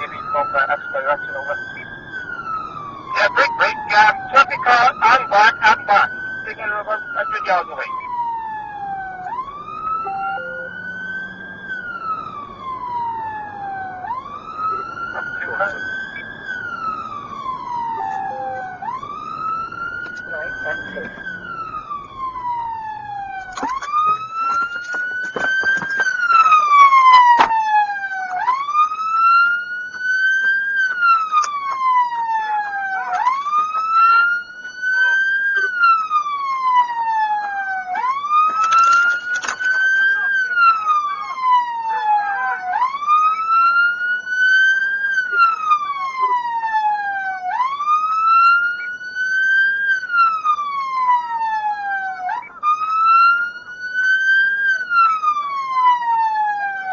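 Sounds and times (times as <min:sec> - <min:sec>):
police siren wailing: 0:00.0 - 0:56.9.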